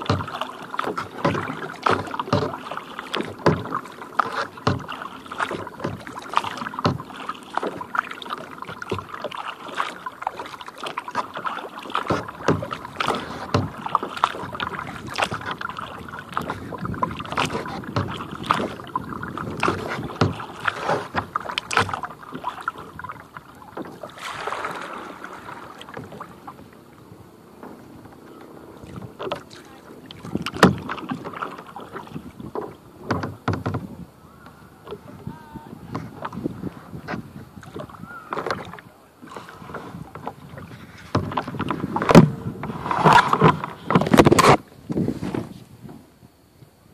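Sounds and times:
paddle splashing water: 0.0 - 46.9.

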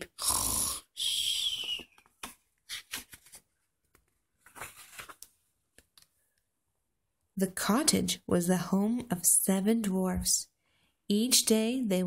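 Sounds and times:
paper rustling: 1.7 - 6.1
book scraping on table: 4.4 - 5.2.

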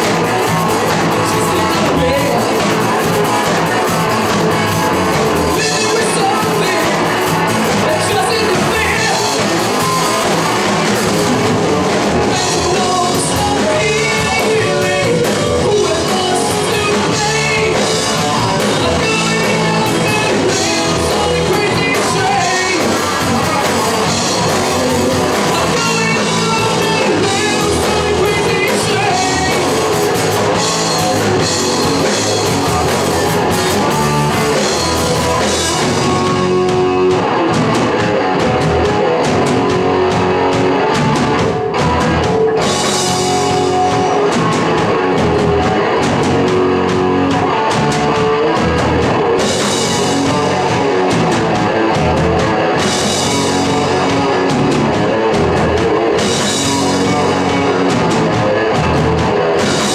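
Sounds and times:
person singing: 0.0 - 11.1, 12.0 - 37.2
bass guitar: 0.0 - 59.9
drum kit: 0.0 - 59.9
electric guitar: 0.0 - 59.9.

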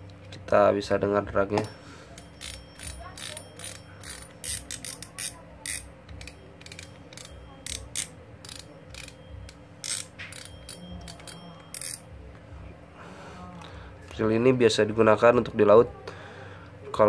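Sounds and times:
fishing reel drag clicking: 9.8 - 12.0.

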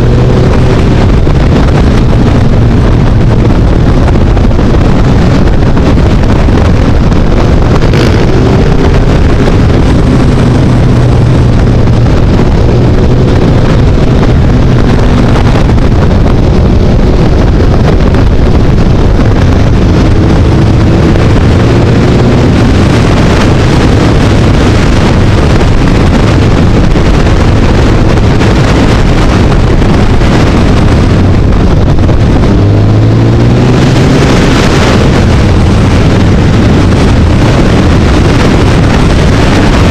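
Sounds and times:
motorcycle engine revving: 0.0 - 39.9
wind buffeting microphone: 0.0 - 39.9.

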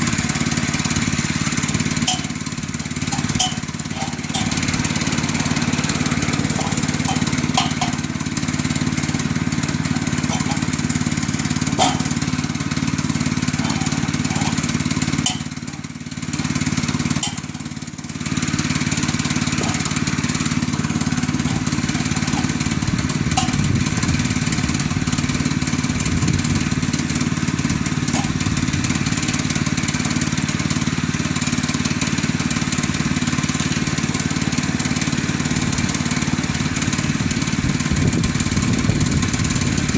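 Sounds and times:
small gasoline engine running: 0.0 - 39.9
sharp clicks and knocks: 2.0 - 2.5, 3.1 - 4.8, 6.5 - 8.1, 10.2 - 10.7, 11.8 - 12.3, 13.6 - 15.8, 17.2 - 17.6, 23.3 - 23.7.

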